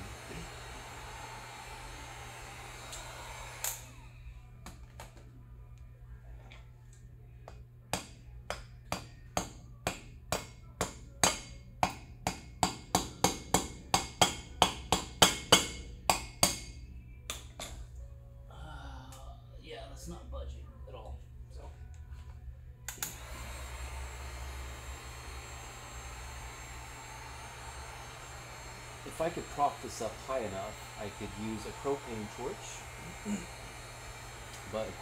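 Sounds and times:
heat gun blowing: 0:00.0 - 0:04.1, 0:22.9 - 0:35.0
wrench striking metal: 0:07.9 - 0:17.8.

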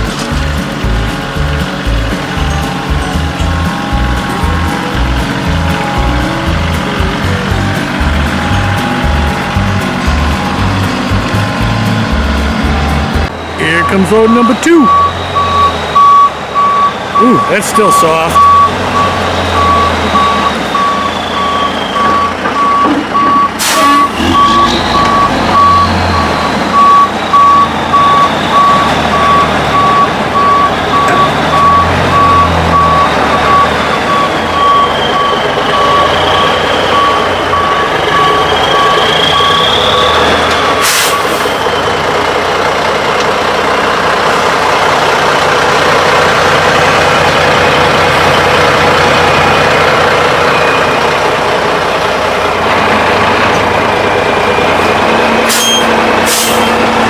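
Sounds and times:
diesel engine running: 0:00.0 - 0:57.0
backup alarm beeping: 0:02.4 - 0:42.0
air brake hiss: 0:23.6 - 0:24.1, 0:40.8 - 0:41.6, 0:55.5 - 0:56.8.

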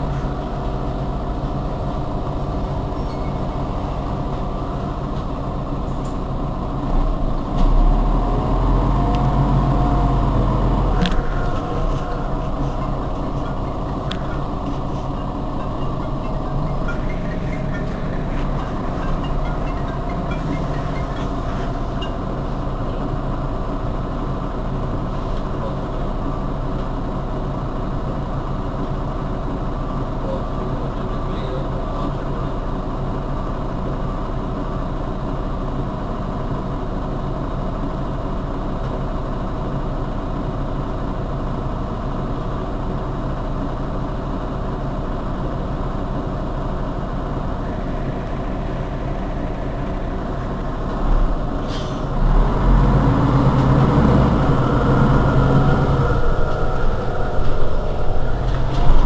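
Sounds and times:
bus engine idling: 0:00.0 - 0:59.0.

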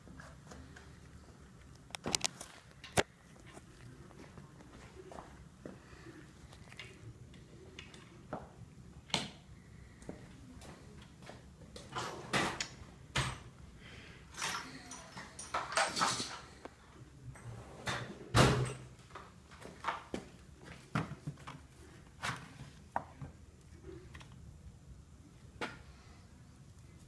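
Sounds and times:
tools and engine parts clattering: 0:14.3 - 0:16.6.

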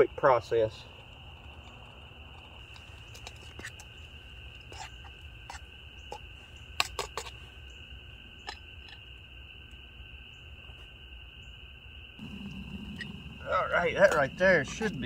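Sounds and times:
high-pitched animal chorus: 0:12.2 - 0:15.0.

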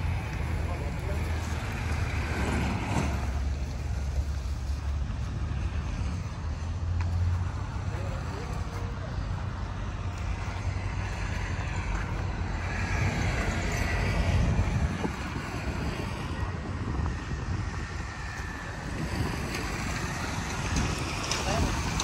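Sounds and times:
low vehicle rumble: 0:00.0 - 0:22.0
wind noise on microphone: 0:09.4 - 0:22.0.

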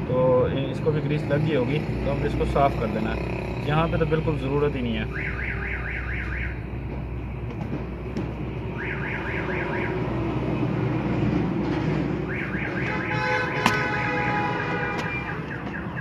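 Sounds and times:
electronic alarm warbling chirps: 0:05.1 - 0:06.6.

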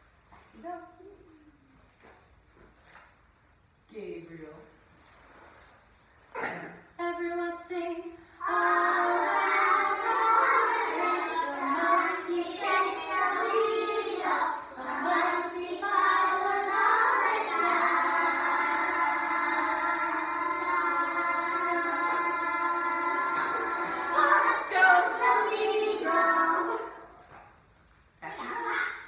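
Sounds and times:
children singing together: 0:08.4 - 0:27.2.

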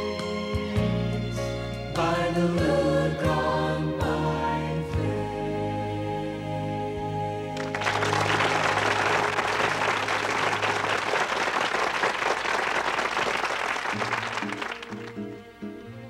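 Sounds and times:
choir holding a chord: 0:01.8 - 0:10.6
audience applauding: 0:07.6 - 0:15.4.

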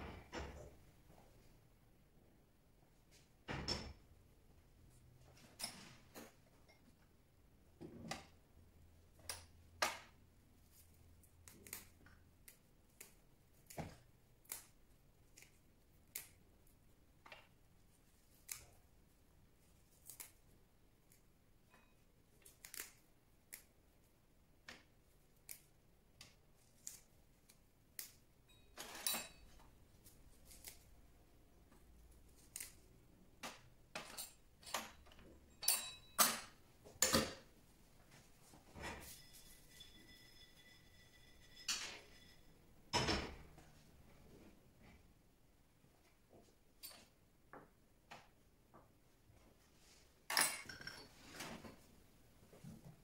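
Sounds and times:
basil stems snapping: 0:20.0 - 0:20.4.

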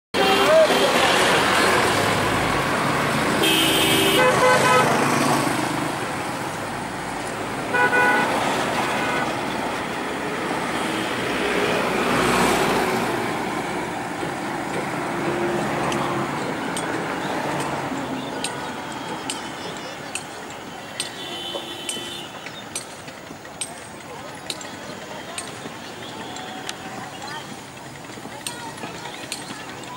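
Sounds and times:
road traffic: 0:00.1 - 0:29.9
vehicle horns honking: 0:00.2 - 0:01.4, 0:03.4 - 0:05.3, 0:07.7 - 0:09.6, 0:17.9 - 0:22.6, 0:25.7 - 0:27.5.

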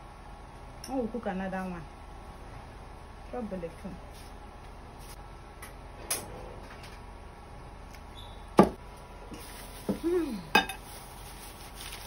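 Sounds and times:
low steady hum: 0:00.0 - 0:12.0
person humming: 0:10.0 - 0:10.6.

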